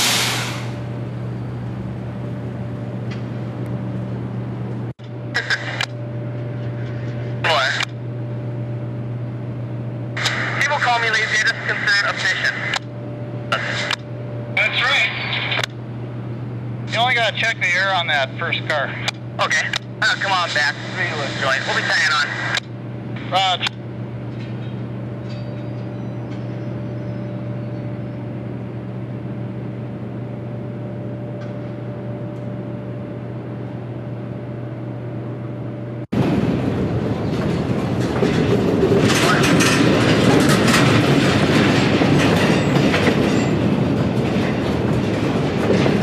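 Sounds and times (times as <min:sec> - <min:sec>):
locomotive engine hum: 0:00.0 - 0:46.0
train wheels clattering over rail joints: 0:36.7 - 0:46.0.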